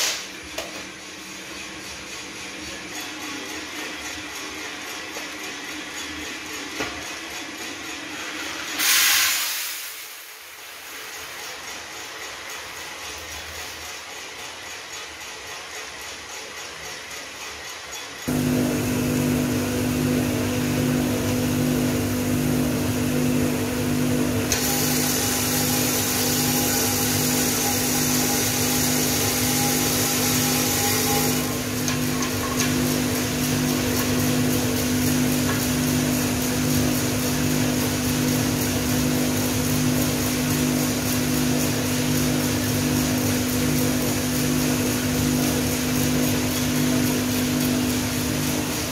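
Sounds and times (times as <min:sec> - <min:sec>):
coffee roaster motor and fan hum: 0:00.0 - 0:48.9
coffee beans pouring into drum: 0:08.6 - 0:11.2, 0:24.6 - 0:34.2.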